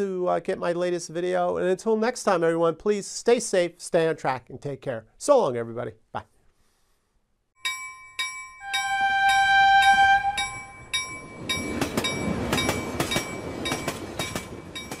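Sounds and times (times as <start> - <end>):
bell ringing: 7.6 - 15.0
train horn blast: 8.6 - 10.8
train wheels clacking: 8.7 - 15.0.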